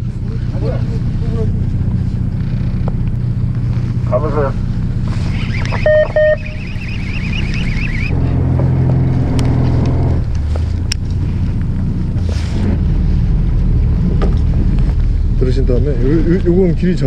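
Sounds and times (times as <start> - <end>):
boat engine running: 0.0 - 11.3.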